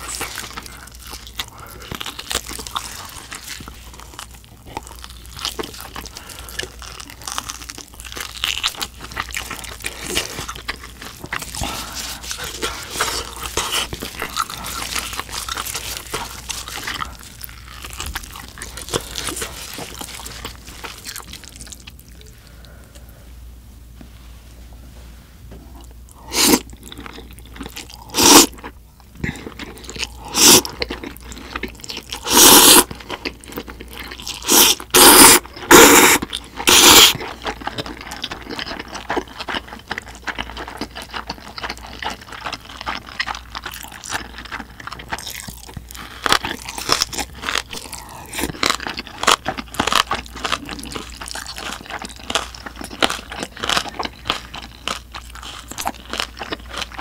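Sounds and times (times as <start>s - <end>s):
chewing with small crunches: 0.0s - 23.2s, 25.6s - 57.0s
loud noodle slurping: 26.3s - 26.7s, 28.1s - 28.6s, 30.2s - 30.8s, 32.2s - 32.9s, 34.3s - 37.2s.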